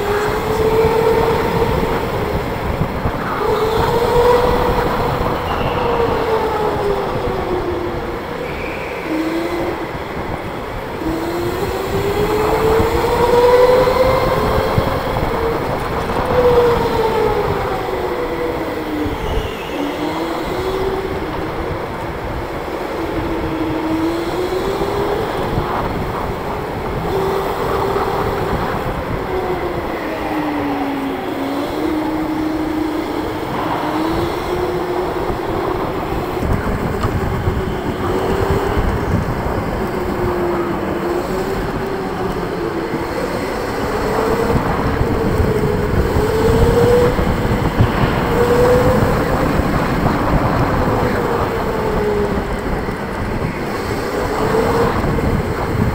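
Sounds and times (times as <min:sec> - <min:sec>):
kart rumble on concrete: 0:31.7 - 0:55.9.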